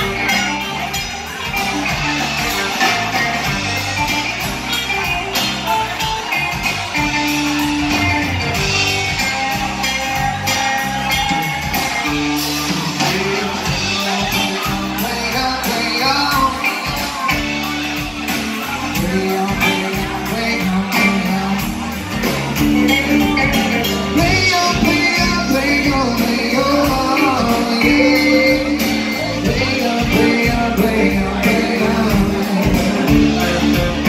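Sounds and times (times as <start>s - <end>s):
acoustic guitar: 0.0s - 34.0s
drums keeping a steady beat: 0.0s - 34.0s
electric guitar: 0.0s - 34.0s
lead vocals singing: 12.8s - 17.3s, 24.1s - 33.9s.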